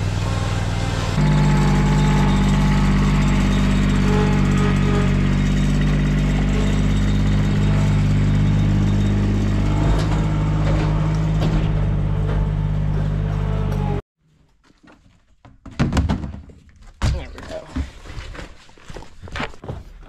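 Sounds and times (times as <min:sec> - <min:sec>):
mower engine running: 0:00.0 - 0:14.0
knocks on wooden ramp: 0:15.5 - 0:17.8.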